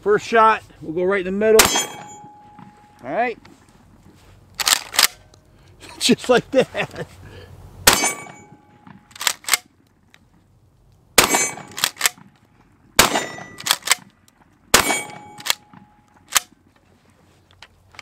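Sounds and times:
shotgun shots: 1.6s - 2.5s, 7.8s - 8.6s, 11.2s - 12.2s, 13.0s - 14.1s, 14.7s - 16.5s.

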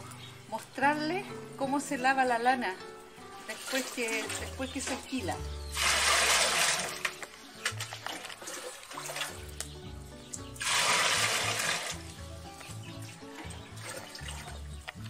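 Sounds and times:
background music with bass: 0.0s - 15.0s
water pouring into metal pot: 2.9s - 9.6s, 10.5s - 15.0s.

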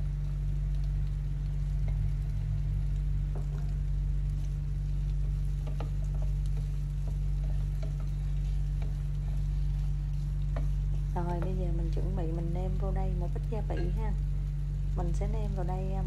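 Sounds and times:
food sizzling in oil: 0.0s - 16.0s
steady low hum: 0.0s - 16.0s
utensil stirring and scraping: 3.4s - 12.0s.

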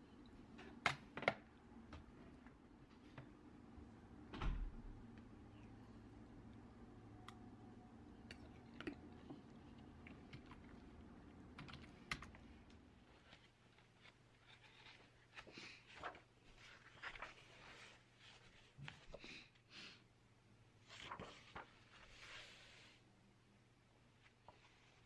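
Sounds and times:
book pages rustling: 11.8s - 19.4s, 20.8s - 23.0s, 24.2s - 25.0s.

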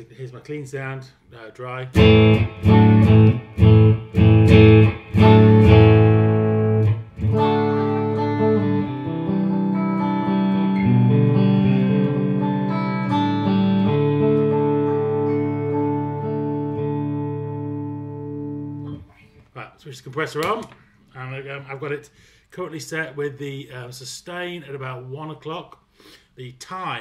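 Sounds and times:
clean electric guitar chords: 2.0s - 19.1s.

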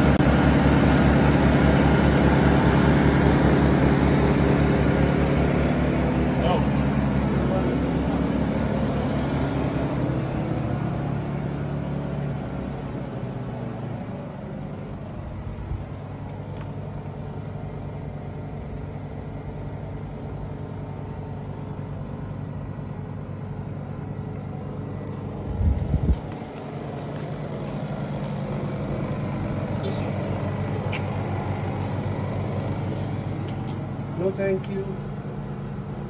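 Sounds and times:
generator engine hum: 0.0s - 36.0s
loud low rumble: 24.6s - 34.2s.

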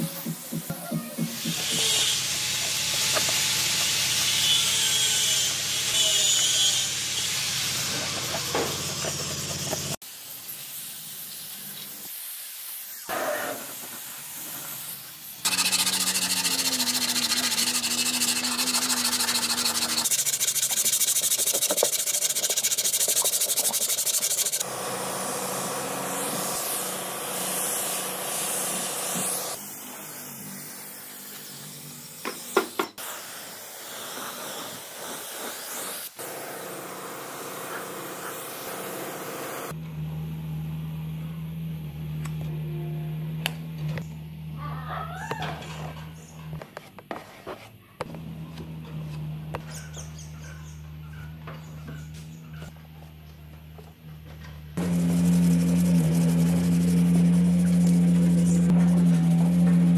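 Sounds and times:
abrasive tool hissing and rubbing: 0.0s - 24.7s, 26.0s - 36.2s, 54.8s - 59.9s.

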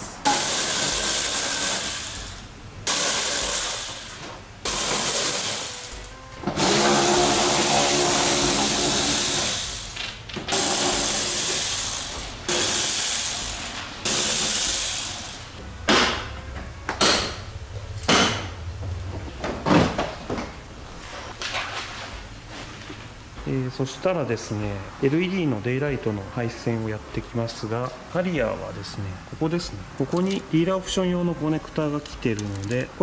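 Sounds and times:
power driver bursts: 10.5s - 15.5s.

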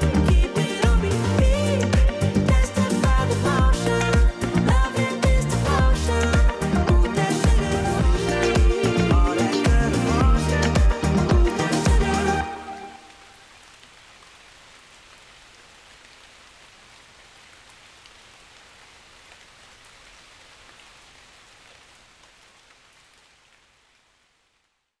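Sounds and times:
loud dance music: 0.0s - 12.8s
steady rain falling: 0.0s - 25.0s.

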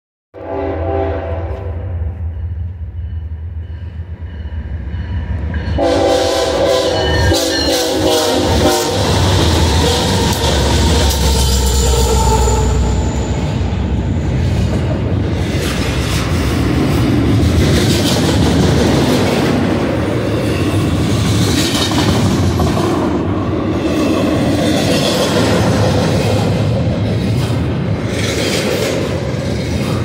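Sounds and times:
diesel locomotives rumbling: 0.4s - 30.0s
train wheel rumble: 0.4s - 30.0s
wheels clacking over rail joints: 14.4s - 30.0s.

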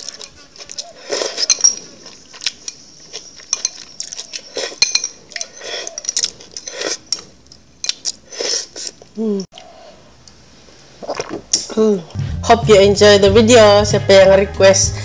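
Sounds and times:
slurping soup: 0.0s - 7.3s, 8.1s - 9.7s
chopsticks clinking on glass: 0.0s - 8.2s
short falling hum: 12.2s - 13.0s.

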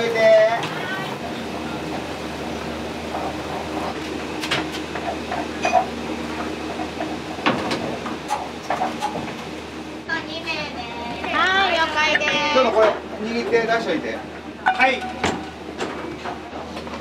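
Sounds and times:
dishes and utensils clinking: 5.6s - 5.9s.

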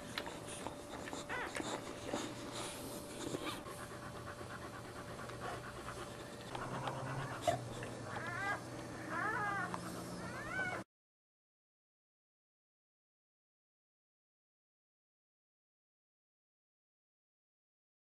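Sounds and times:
dog licking puppies: 0.0s - 10.8s
dog panting: 0.0s - 10.8s
dog whining: 0.2s - 4.0s, 6.5s - 10.9s.

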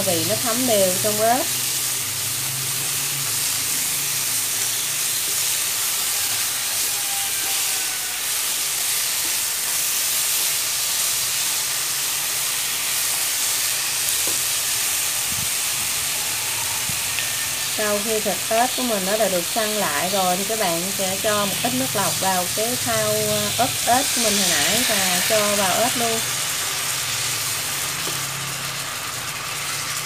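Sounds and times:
food sizzling in hot oil: 0.0s - 30.0s.

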